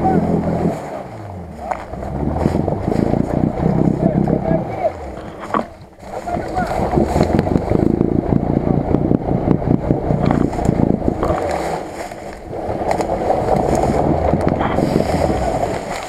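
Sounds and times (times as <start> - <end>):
car engine under load: 0.0 - 16.0
water churning: 0.0 - 16.0.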